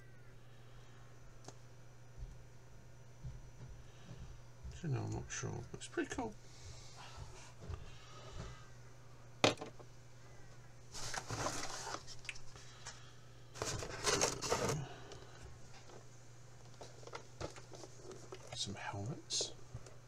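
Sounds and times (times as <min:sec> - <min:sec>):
packaging rustling and scraping: 0:10.9 - 0:12.6, 0:13.5 - 0:18.7.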